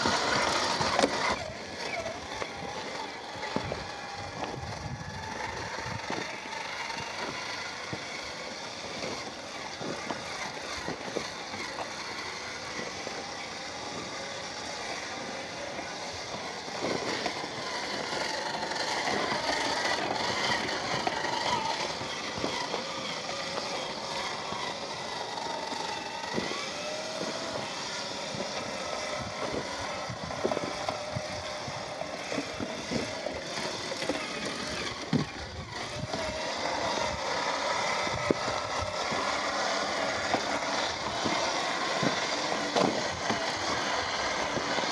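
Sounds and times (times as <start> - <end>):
electric motor and gearbox whine: 0.0 - 44.9
tyres and drivetrain noise: 0.0 - 44.9.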